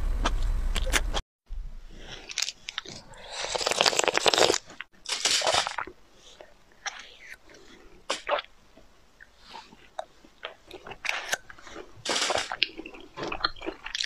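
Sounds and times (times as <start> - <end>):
crunching: 1.8 - 8.5, 9.2 - 14.0
wet mouth noise: 2.2 - 8.5, 9.2 - 14.0.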